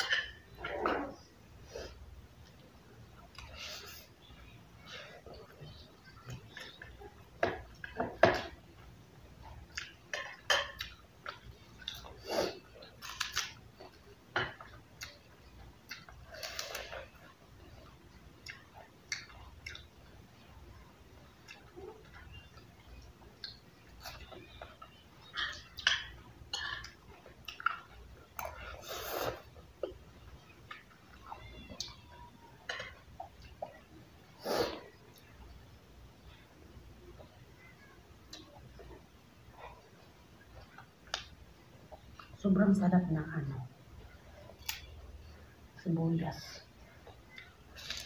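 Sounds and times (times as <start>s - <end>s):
wet chewing: 10.8s - 20.6s, 21.2s - 33.9s
crunching of raw leafy greens: 47.7s - 48.0s.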